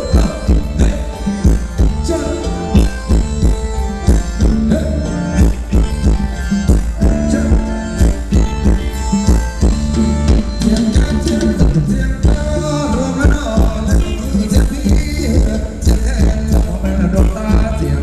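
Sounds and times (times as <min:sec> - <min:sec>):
loud dance music with drums: 0:00.0 - 0:12.6.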